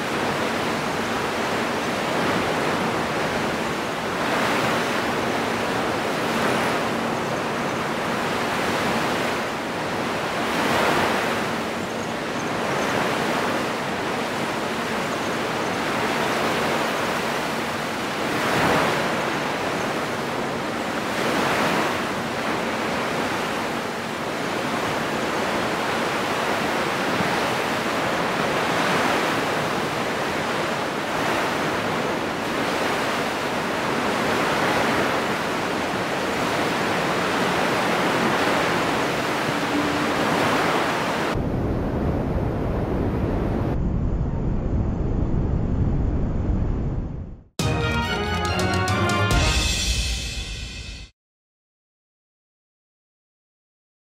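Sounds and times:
surf breaking on sandy beach: 0:00.0 - 0:07.2, 0:12.6 - 0:43.7.

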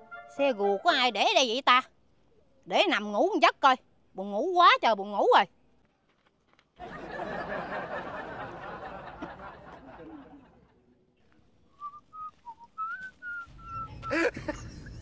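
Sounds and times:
rough rustling: 0:11.3 - 0:14.1
person whistling a tune: 0:11.7 - 0:14.2.

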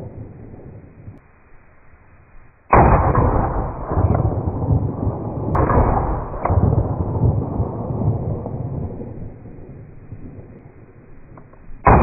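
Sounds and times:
pistol shots: 0:02.7 - 0:09.0.

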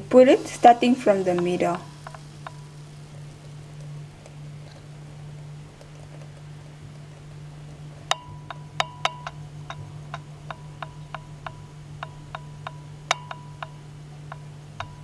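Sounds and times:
steady low hum: 0:00.0 - 0:15.0
light sharp metallic ticks: 0:08.1 - 0:15.0.

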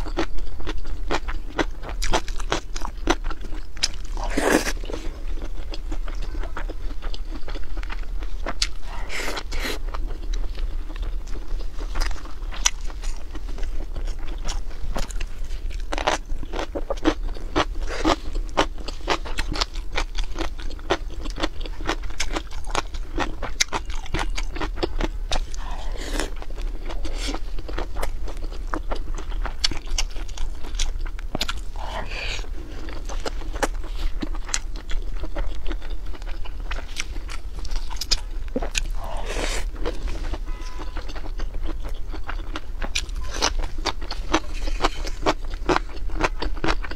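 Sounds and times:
chewing and crunching: 0:00.0 - 0:46.9
smooth mouth sounds: 0:08.7 - 0:10.0, 0:38.3 - 0:40.5.

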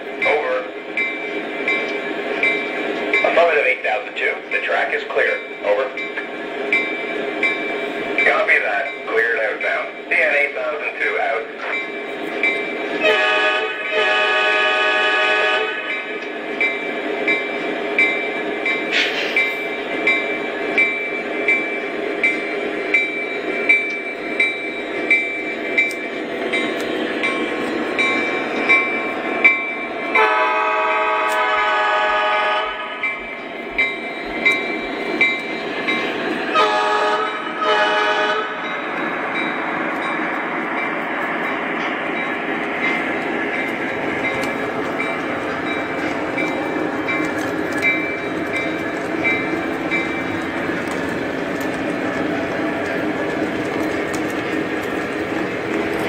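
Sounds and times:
train running on track: 0:00.0 - 0:56.0
train horn blasts: 0:13.0 - 0:16.0, 0:30.2 - 0:33.0, 0:36.5 - 0:38.6.

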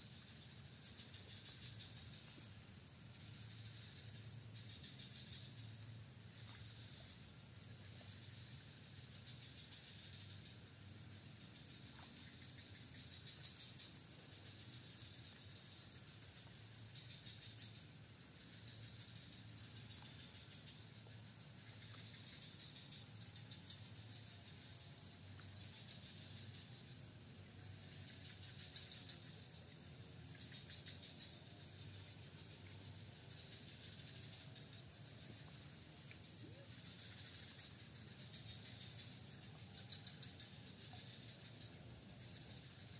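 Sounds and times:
insects chirring: 0:00.0 - 0:42.9
faint ticks: 0:11.6 - 0:15.6.

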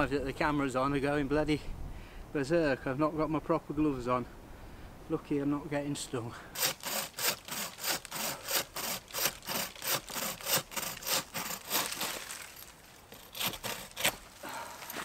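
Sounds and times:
hand saw cutting branch: 0:06.5 - 0:15.0.

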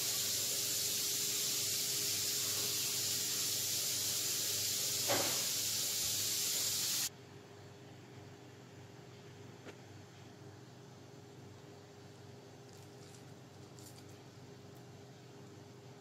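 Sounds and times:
steady background hiss: 0:00.0 - 0:07.1.

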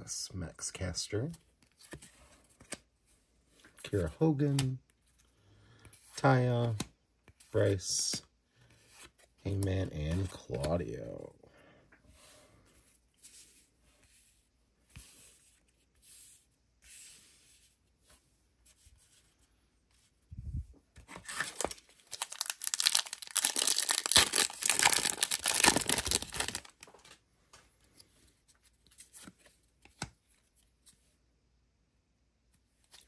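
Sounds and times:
wrapper tearing and crinkling: 0:21.4 - 0:26.8.

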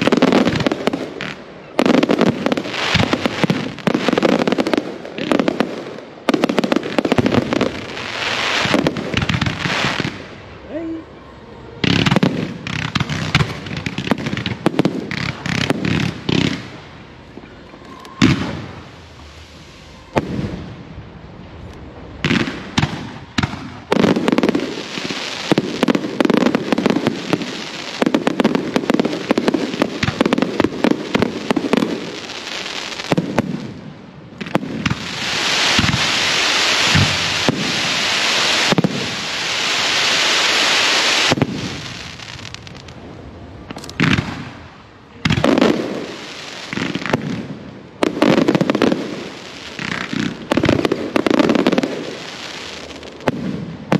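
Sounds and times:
fireworks bangs: 0:00.0 - 0:53.9
fireworks crackling hiss: 0:00.0 - 0:53.9.

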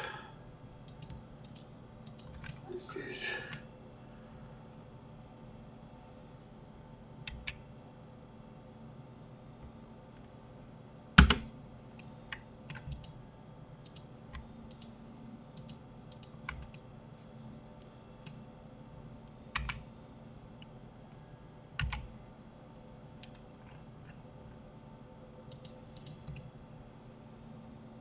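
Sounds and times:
faint steady hum: 0:00.0 - 0:28.0
keyboard and mouse clicking: 0:00.8 - 0:02.6, 0:07.3 - 0:07.6, 0:12.3 - 0:13.2, 0:13.8 - 0:14.9, 0:15.6 - 0:16.8, 0:19.5 - 0:19.8, 0:21.8 - 0:22.1, 0:25.5 - 0:26.5.

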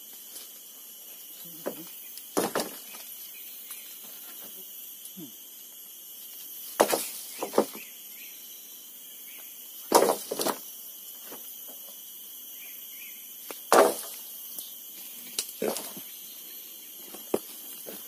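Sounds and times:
forest insects droning: 0:00.0 - 0:18.0
wooden boards knocking together: 0:01.6 - 0:03.0, 0:06.8 - 0:07.8, 0:09.9 - 0:10.6, 0:13.7 - 0:14.2.

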